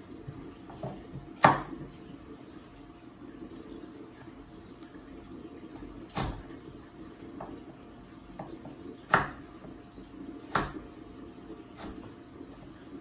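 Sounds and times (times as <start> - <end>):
low steady hum: 0.0 - 13.0
knife chopping on wooden board: 0.7 - 1.8, 9.1 - 9.4.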